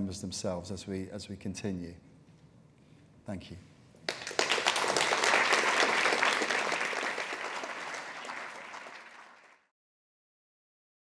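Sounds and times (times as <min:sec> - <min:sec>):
audience applauding: 0:04.1 - 0:09.7.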